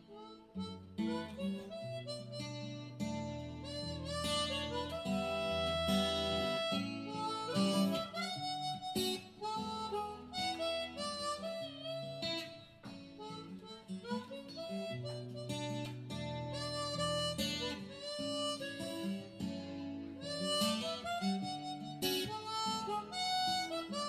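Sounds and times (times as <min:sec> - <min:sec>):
acoustic guitar: 0:00.0 - 0:24.0
harmonica melody: 0:00.0 - 0:24.0.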